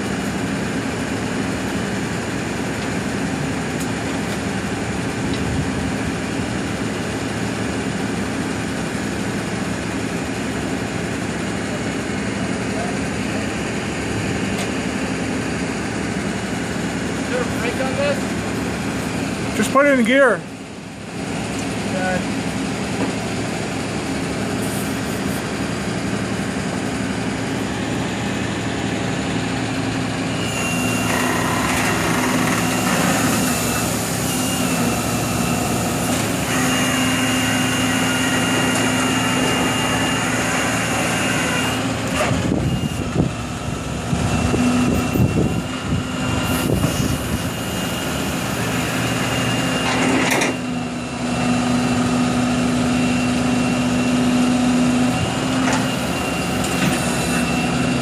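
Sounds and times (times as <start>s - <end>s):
hydraulic whine: 0.0s - 58.0s
truck engine running: 0.0s - 58.0s.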